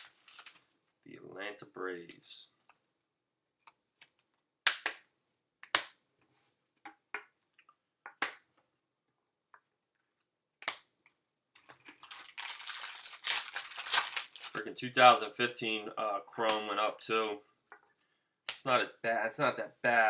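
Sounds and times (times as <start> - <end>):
foil card pack tearing open: 12.0 - 14.6.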